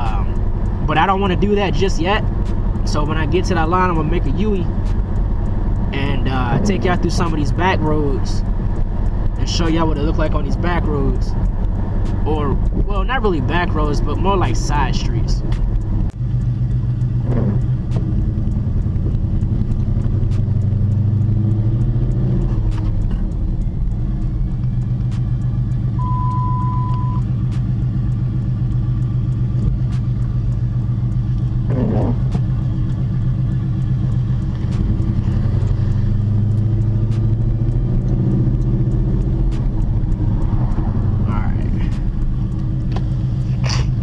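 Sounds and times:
car engine drone: 0.0 - 44.0
short steady beep: 26.0 - 27.3.

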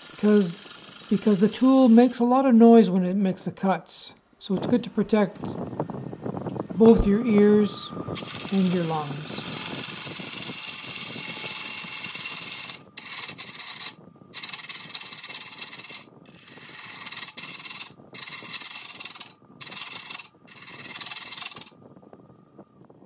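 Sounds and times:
lathe gouge cutting wood: 0.0 - 2.2, 8.2 - 21.7.

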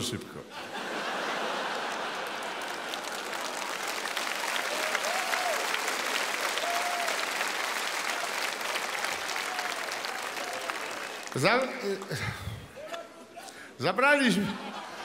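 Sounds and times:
audience applauding: 1.3 - 12.6
calls from the crowd: 4.0 - 11.5.

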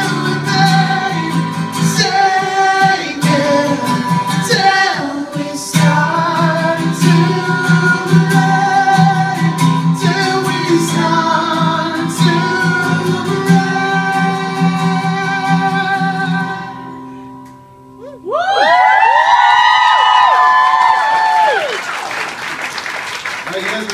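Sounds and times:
man singing: 0.0 - 16.9
strummed acoustic guitar: 0.0 - 18.0
audience cheering and applauding: 18.2 - 23.9.

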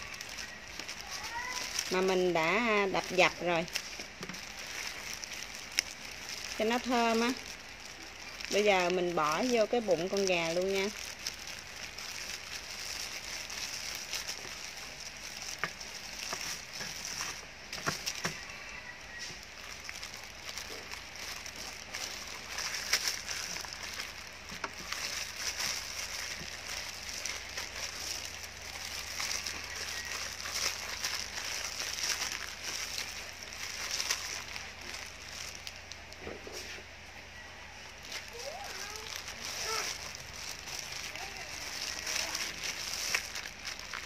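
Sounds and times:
plastic glove crinkling: 0.0 - 44.0.

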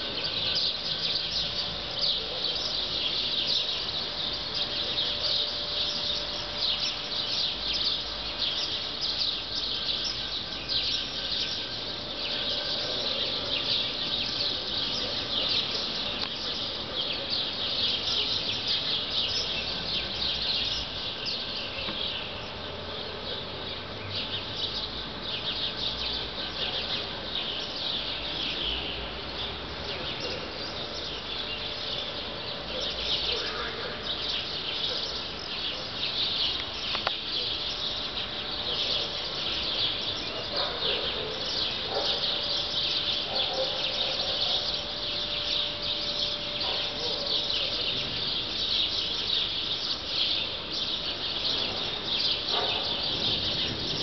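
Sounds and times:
chorus of high-pitched chirping: 24.5 - 54.0.

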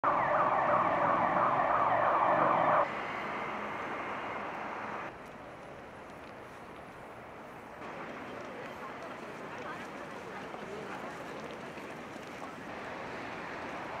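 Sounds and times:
emergency vehicle siren yelping: 0.0 - 2.9
city traffic noise: 0.0 - 14.0.

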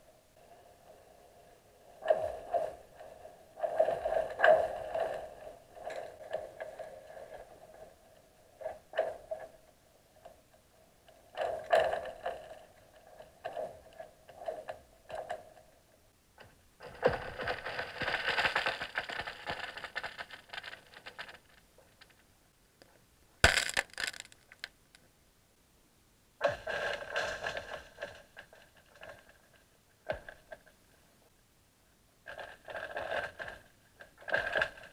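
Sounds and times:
ice crackling underwater: 0.4 - 15.9, 16.8 - 22.3, 23.4 - 25.0, 26.4 - 30.9, 32.2 - 34.9
sharp ice crack: 23.4 - 24.8.

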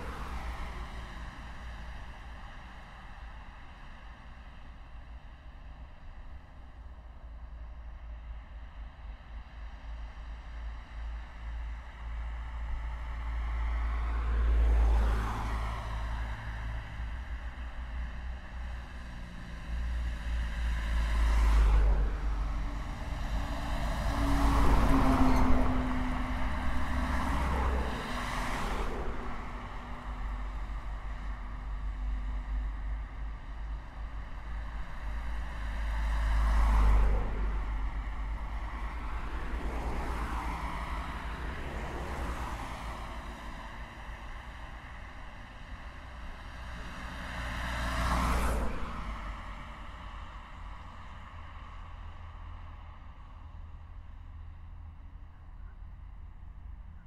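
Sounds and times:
road traffic rumble: 0.0 - 57.0.

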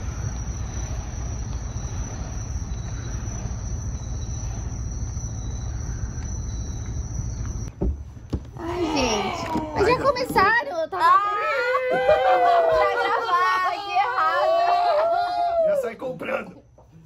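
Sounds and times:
insects trilling: 0.0 - 7.8, 8.4 - 17.0.

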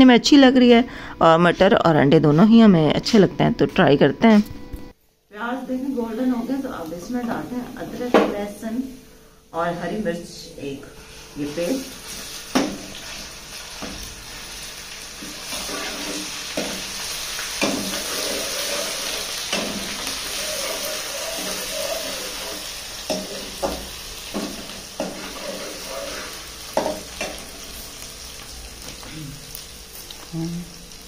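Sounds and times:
onions sizzling in hot oil: 5.4 - 9.0, 11.0 - 31.0
ladle scraping and knocking pan: 17.6 - 27.4.

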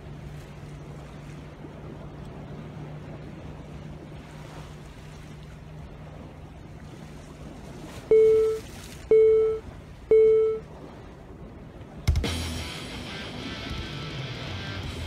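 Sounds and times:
sea and wind: 0.0 - 15.0
electronic countdown beeps: 8.1 - 10.6
music: 12.1 - 15.0.

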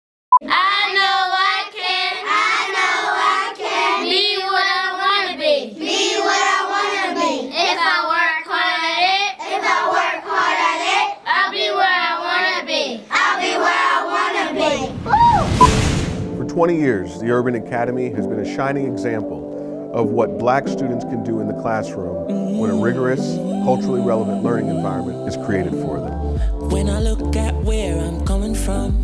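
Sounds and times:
young children singing: 0.4 - 15.4, 21.7 - 26.3.

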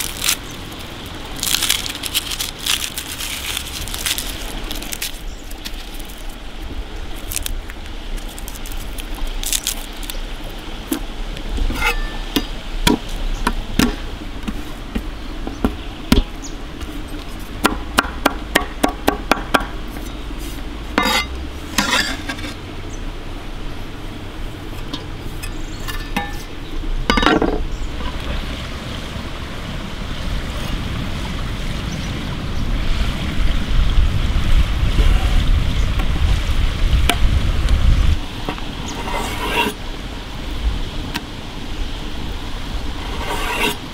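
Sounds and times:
garlic peeling taps and rustles: 0.0 - 6.4, 7.2 - 10.2
knife scraping board: 11.7 - 12.2, 19.9 - 22.6, 38.9 - 39.8, 43.0 - 43.8.

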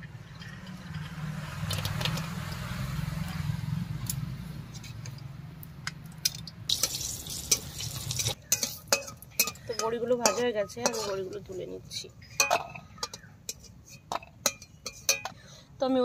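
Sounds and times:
metal spatula scraping a pan: 6.2 - 11.6, 12.2 - 15.4
dumplings sizzling in hot oil: 6.7 - 9.4.

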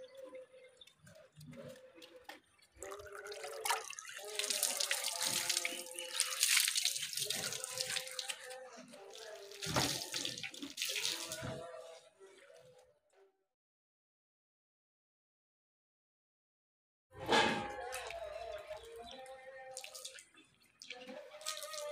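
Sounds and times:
water splashing and dripping: 2.8 - 11.6, 17.9 - 21.9.

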